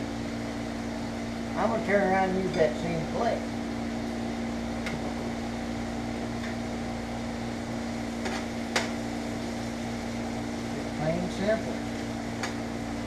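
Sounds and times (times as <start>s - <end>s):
food frying in a skillet: 0.0s - 13.0s
steady electrical hum: 0.0s - 13.0s.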